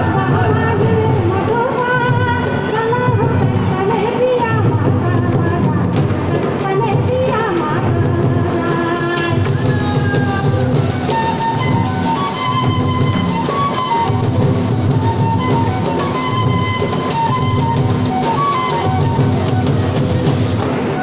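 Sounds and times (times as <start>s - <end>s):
barrel drum beat: 0.0s - 21.0s
jingling percussion: 0.0s - 21.0s
folk dance melody: 9.7s - 21.0s.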